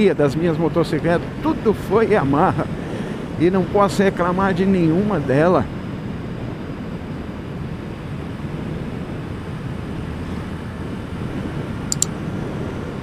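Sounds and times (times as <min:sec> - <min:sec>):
wind noise on microphone: 0:01.1 - 0:13.0
motorcycle engine cruising: 0:06.1 - 0:13.0
short high ticks: 0:11.9 - 0:12.2.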